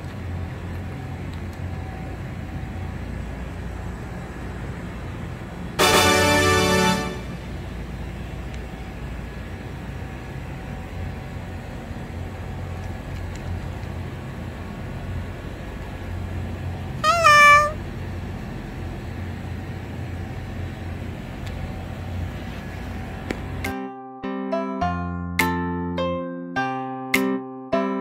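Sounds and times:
steady low hum: 0.0 - 23.7
cat meowing: 17.0 - 17.8.

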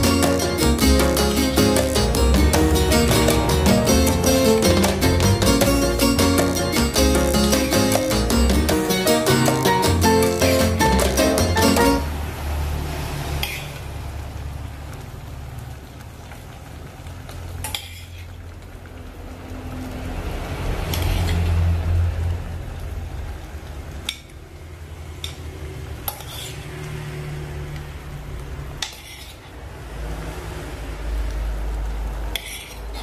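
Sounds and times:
food sizzling in pot: 0.0 - 33.0
metal spoon scraping ceramic: 26.1 - 26.7, 28.8 - 29.5.

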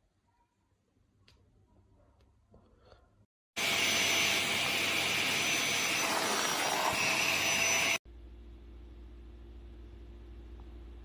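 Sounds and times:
vacuum cleaner motor whine: 3.6 - 8.0.

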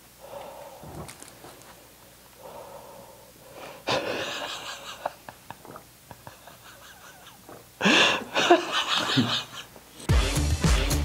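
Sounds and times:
faint breathing: 0.0 - 4.5, 7.8 - 8.4
person snorting: 0.2 - 1.6, 2.4 - 5.0.

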